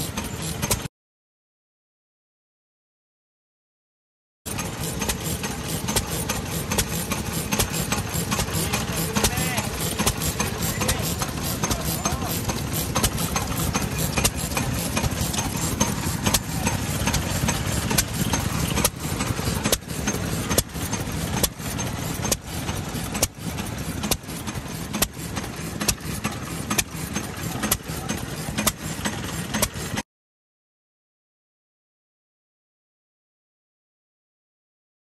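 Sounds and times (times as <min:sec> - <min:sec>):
stationary engine rumbling: 0:00.0 - 0:00.9, 0:04.5 - 0:30.0
engine firing pops: 0:04.5 - 0:30.0.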